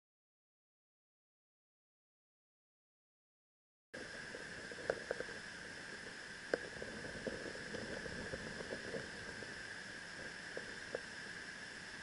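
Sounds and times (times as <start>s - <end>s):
stream water running: 4.0s - 12.0s.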